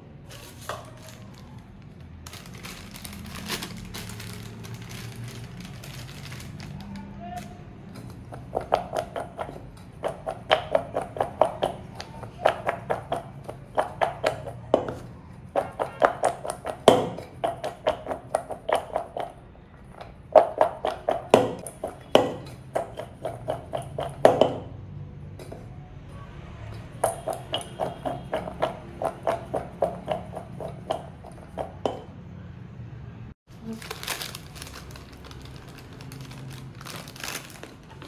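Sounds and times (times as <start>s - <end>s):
potato strips tapping metal bowl: 8.2s - 19.4s, 20.3s - 24.7s, 27.0s - 32.1s.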